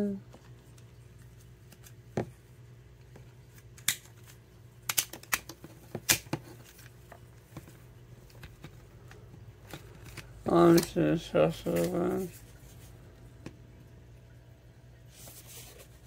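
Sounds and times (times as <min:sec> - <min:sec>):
faint low hum: 0:00.0 - 0:16.0
plastic toy clicks and snaps: 0:04.8 - 0:06.3.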